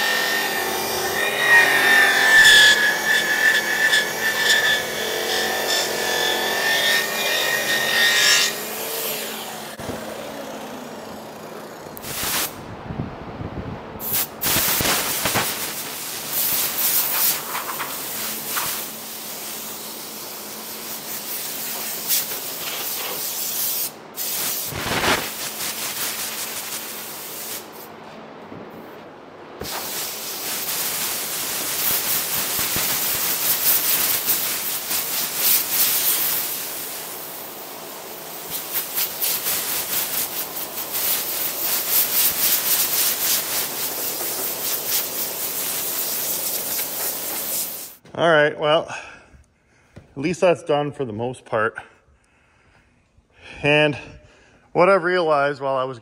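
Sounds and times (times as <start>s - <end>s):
compressed air blow gun hissing: 12.0s - 12.6s, 14.0s - 27.8s, 29.6s - 48.0s.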